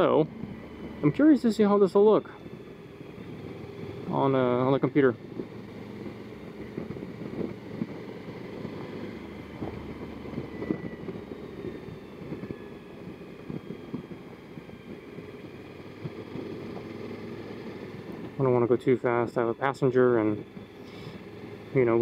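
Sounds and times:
wind buffeting: 0.0s - 20.8s
motorcycle road rumble: 0.0s - 22.0s.

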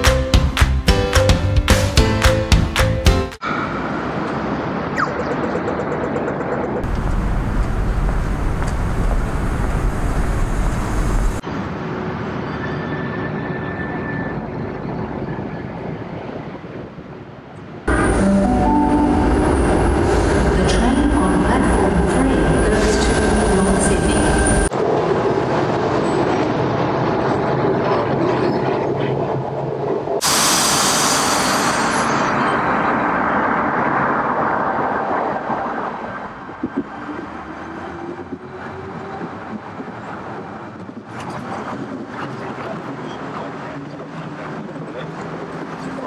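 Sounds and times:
loud rushing noise: 30.2s - 36.9s.

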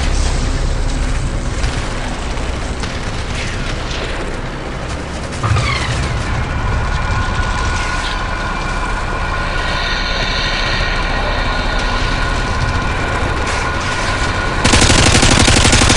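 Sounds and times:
high whine: 0.0s - 15.9s
metallic screech: 5.4s - 14.7s.

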